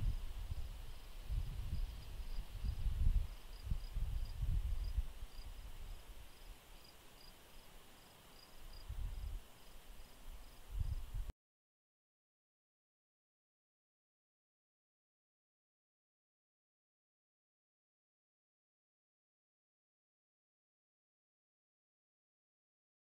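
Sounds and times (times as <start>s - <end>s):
wind rumble on microphone: 0.0s - 6.5s, 8.7s - 9.5s, 10.3s - 11.3s
insect hiss: 0.0s - 11.3s
crickets chirping: 0.5s - 11.1s.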